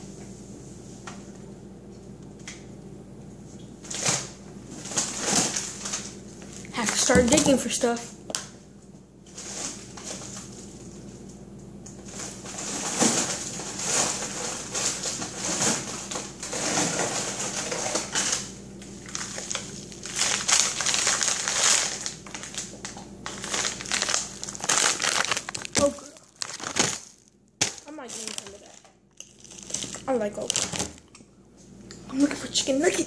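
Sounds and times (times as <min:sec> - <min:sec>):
plastic packages crinkling: 0:03.8 - 0:07.5, 0:12.0 - 0:31.2.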